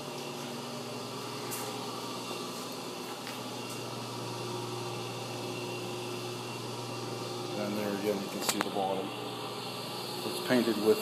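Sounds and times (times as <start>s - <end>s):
ventilation fan hum and hiss: 0.0s - 11.0s.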